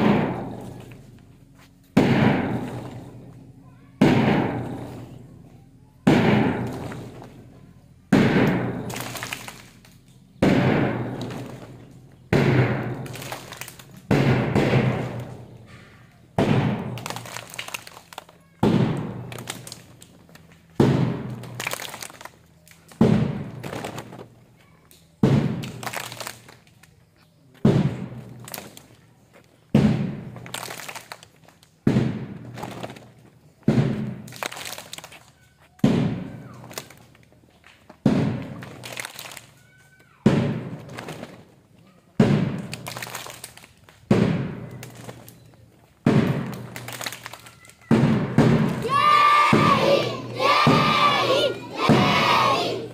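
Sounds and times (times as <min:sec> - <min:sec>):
loud struck beat: 0:00.0 - 0:00.5, 0:02.0 - 0:02.8, 0:04.0 - 0:04.8, 0:06.1 - 0:06.7, 0:08.1 - 0:08.8, 0:12.3 - 0:13.1, 0:14.1 - 0:15.3, 0:16.4 - 0:17.0, 0:49.4 - 0:52.5.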